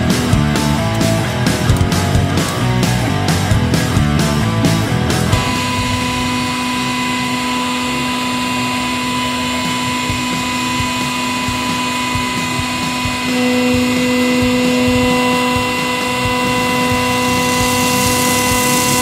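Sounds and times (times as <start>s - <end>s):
hydraulic pump hum and whine: 0.0s - 19.0s.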